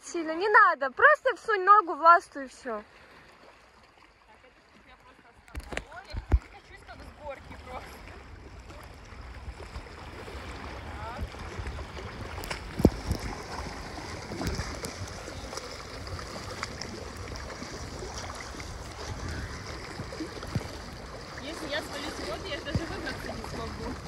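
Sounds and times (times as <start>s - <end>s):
waves lapping around rocks: 0.2s - 24.0s
wind rumble on microphone: 5.6s - 24.0s.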